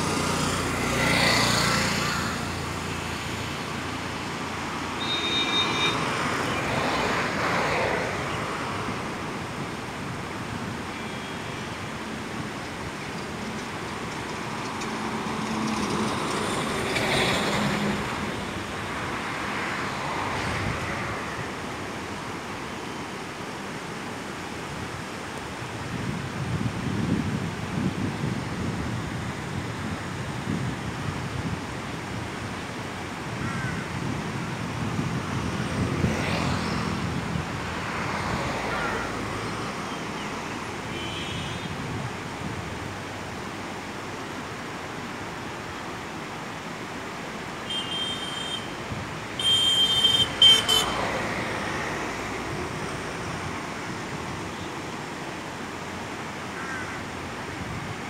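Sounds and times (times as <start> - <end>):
river rushing over stones: 0.0 - 58.0
vehicle passing: 5.8 - 8.7, 35.4 - 40.1, 49.4 - 53.8
wind on microphone: 20.4 - 21.3, 25.7 - 38.5, 41.2 - 43.3.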